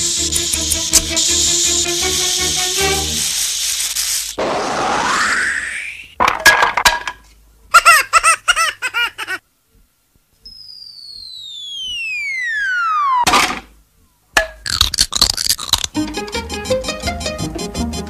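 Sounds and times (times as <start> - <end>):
long falling whistle: 4.7 - 6.1, 10.5 - 13.3.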